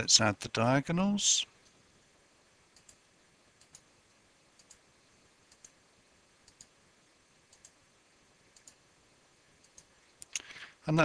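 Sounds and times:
computer mouse clicks: 2.7s - 3.0s, 3.6s - 3.9s, 4.6s - 4.8s, 5.5s - 5.8s, 6.4s - 6.7s, 7.5s - 7.8s, 8.5s - 8.8s, 9.6s - 10.5s.

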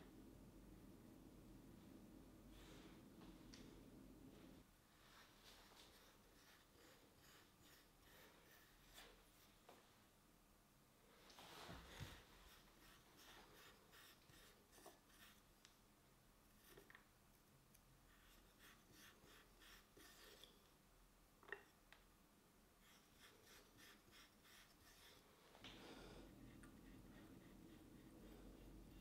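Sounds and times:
hole-cutter scraping clay: 6.2s - 9.2s.

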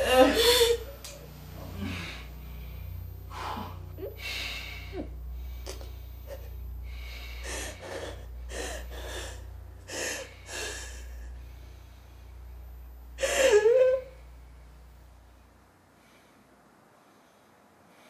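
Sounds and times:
faint steady low hum: 0.0s - 18.0s
person breathing heavily and gasping: 1.7s - 6.0s, 6.8s - 11.4s.

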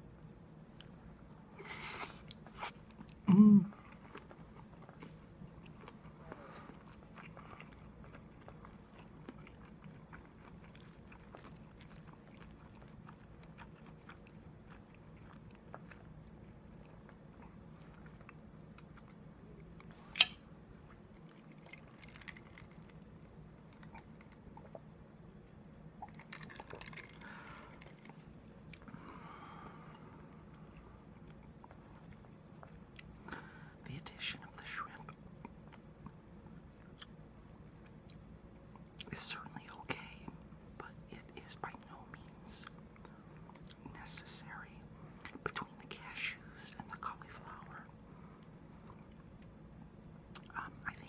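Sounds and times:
person chewing food: 2.1s - 33.6s, 42.6s - 44.0s, 48.4s - 49.6s.

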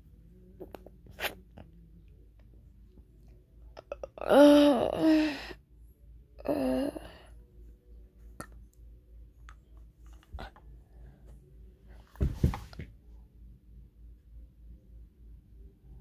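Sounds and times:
boy humming: 3.8s - 5.6s, 6.4s - 7.3s.

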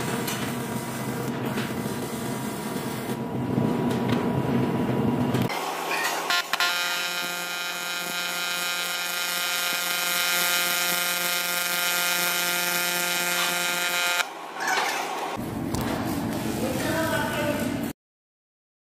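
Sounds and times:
welding arc buzzing: 5.5s - 14.5s.

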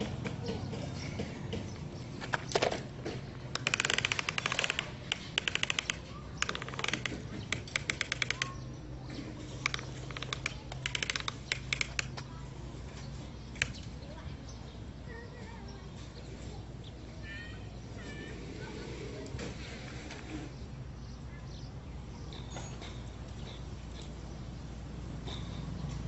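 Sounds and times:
plastic toy truck rattling on sand: 2.2s - 12.2s.

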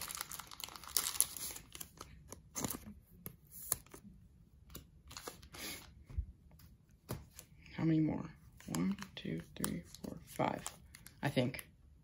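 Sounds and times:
wrapper crinkling: 0.0s - 2.8s
cards being handled: 0.1s - 5.9s, 8.5s - 11.2s.

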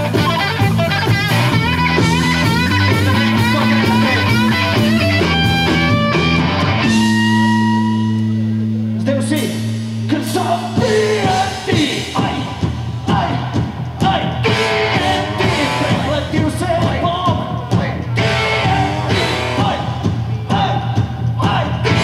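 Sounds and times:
electric guitar runs: 0.0s - 8.5s
live rock band playing: 0.0s - 22.0s.

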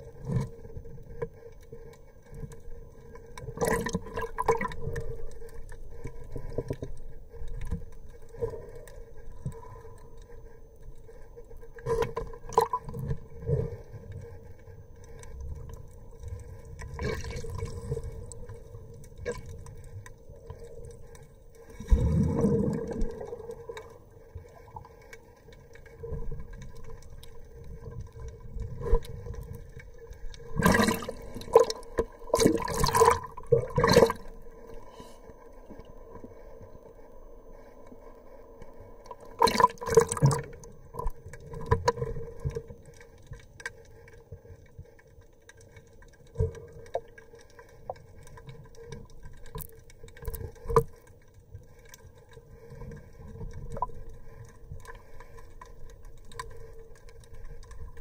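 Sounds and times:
faint hum: 0.0s - 58.0s
underwater water sloshing and bubbling: 0.0s - 58.0s
rushing bubble gushes: 21.8s - 24.0s, 30.5s - 34.4s, 39.4s - 40.7s.

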